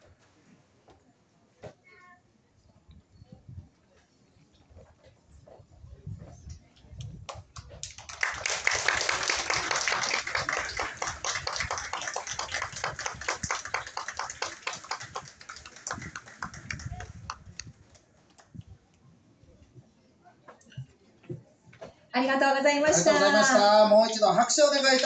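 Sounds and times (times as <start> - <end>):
audience applause: 7.8 - 17.5.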